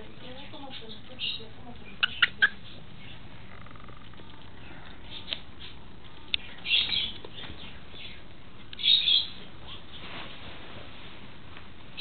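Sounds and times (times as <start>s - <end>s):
pet bird chirping: 0.2s - 4.4s, 5.0s - 10.0s.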